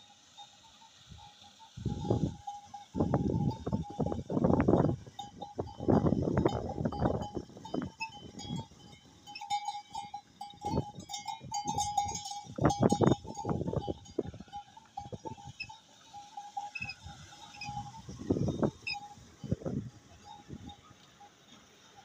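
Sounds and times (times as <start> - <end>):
high squeak of iron gearing: 16.7 - 18.0.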